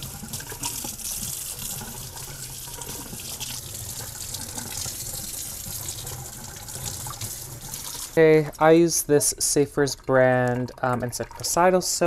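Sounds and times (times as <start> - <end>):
water running from faucet sprayer: 0.0 - 8.2.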